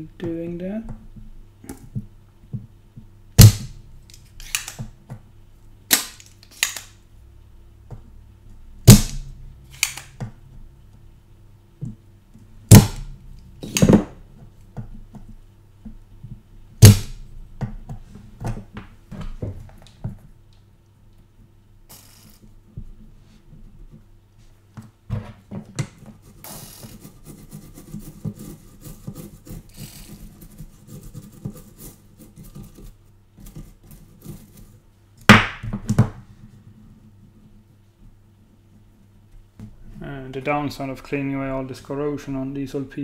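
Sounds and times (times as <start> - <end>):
desoldering pump snapping: 3.4 - 5.0, 5.9 - 7.0, 8.8 - 10.4, 12.7 - 14.7, 16.8 - 17.3.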